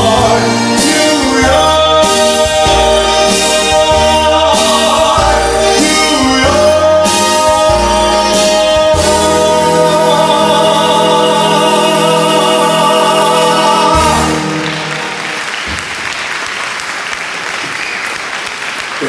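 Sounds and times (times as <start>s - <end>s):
man singing with vibrato: 0.0s - 15.3s
backing music: 0.0s - 16.9s
applause: 14.5s - 19.0s.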